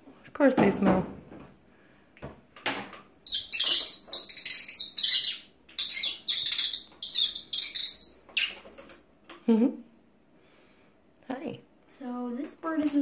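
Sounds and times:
finch chirping: 0:03.3 - 0:08.6.

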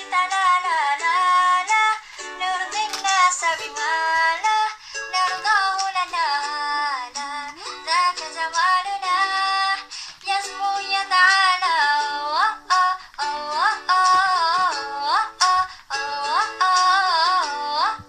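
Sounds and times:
woman singing: 0:00.0 - 0:18.0.

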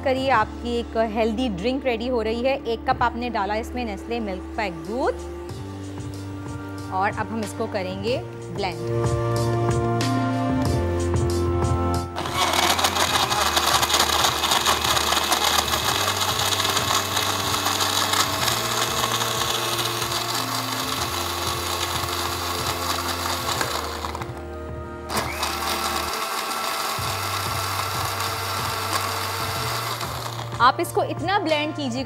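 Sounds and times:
soft background music: 0:00.0 - 0:32.0
electric blender running: 0:12.2 - 0:24.5, 0:25.1 - 0:30.7.

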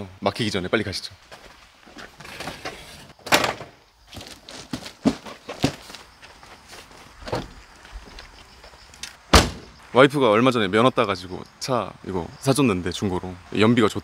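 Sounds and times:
footsteps: 0:01.2 - 0:02.6, 0:04.1 - 0:09.2
door knocks and thuds: 0:09.3 - 0:09.7.

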